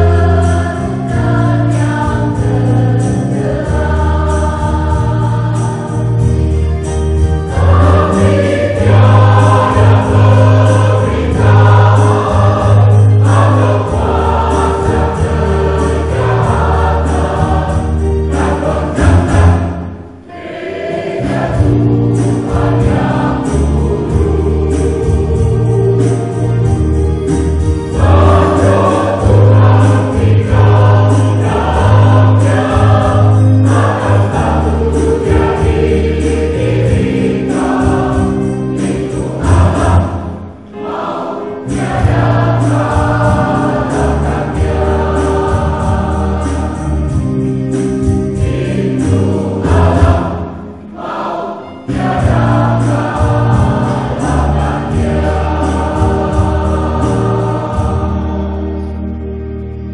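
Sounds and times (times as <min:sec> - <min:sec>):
mixed choir singing a hymn: 0:00.0 - 0:59.9.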